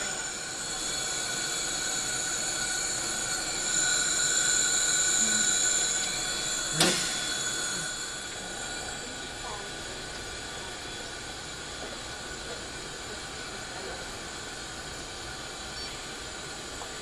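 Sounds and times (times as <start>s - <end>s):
high whistling tones: 0.0s - 9.5s
burner flame hiss: 0.0s - 17.0s.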